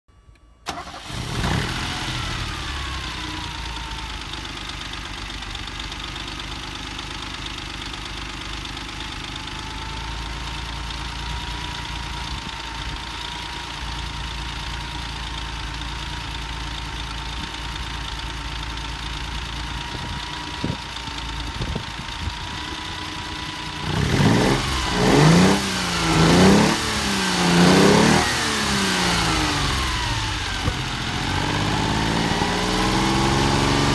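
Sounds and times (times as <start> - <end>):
car engine starting and idling: 0.3 - 33.9
engine revving: 0.7 - 3.9, 22.2 - 33.9.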